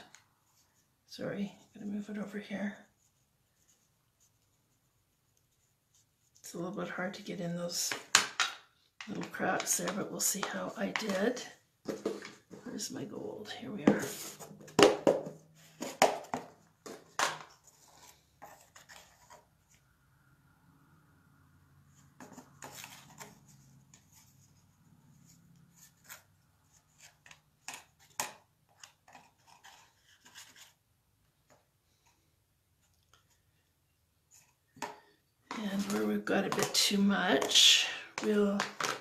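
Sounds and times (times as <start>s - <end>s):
plastic spoon scraping powder: 9.0s - 12.9s, 34.3s - 39.0s.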